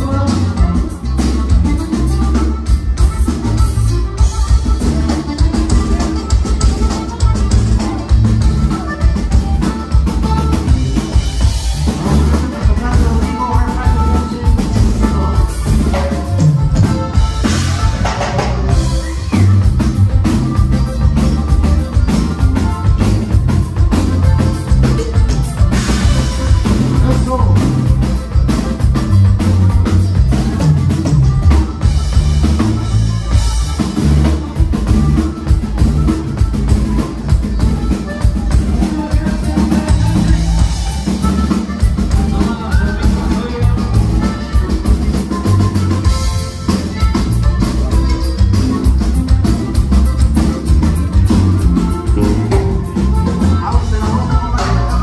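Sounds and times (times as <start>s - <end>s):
drum kit and bass beat: 0.0s - 55.0s
live band music: 0.0s - 55.0s.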